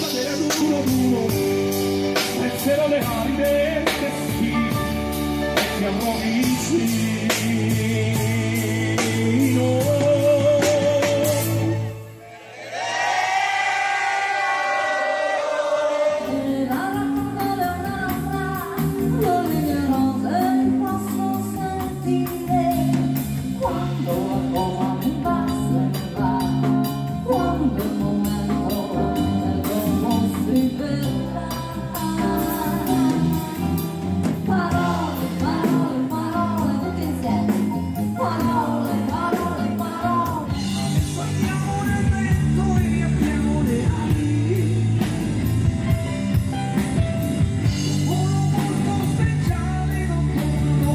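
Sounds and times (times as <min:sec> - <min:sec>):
rock band with electric guitar: 0:00.0 - 0:12.3, 0:16.0 - 0:50.9
live band with singer: 0:00.0 - 0:50.9.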